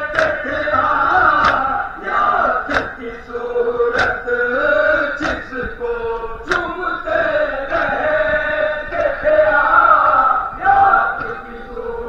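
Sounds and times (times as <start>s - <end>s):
men chanting in unison: 0.0s - 12.0s
hands striking chests: 1.4s - 1.6s, 2.7s - 3.0s, 4.0s - 4.2s.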